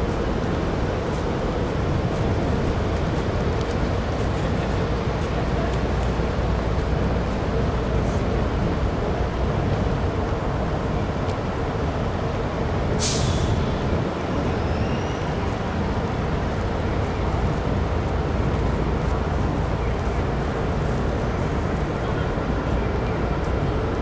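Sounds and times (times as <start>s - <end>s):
city traffic rumble: 0.0s - 24.0s
air brakes hissing: 13.0s - 13.7s
faint high squeal: 14.5s - 15.5s.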